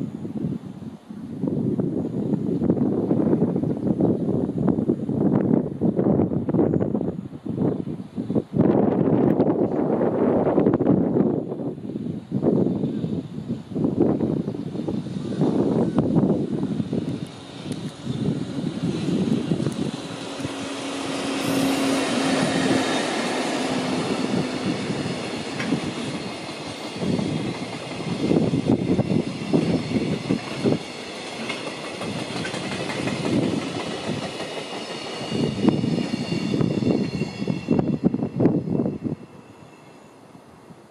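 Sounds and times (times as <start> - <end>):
electric locomotive hum: 0.0 - 40.9
wheels clacking over rail joints: 17.0 - 37.3.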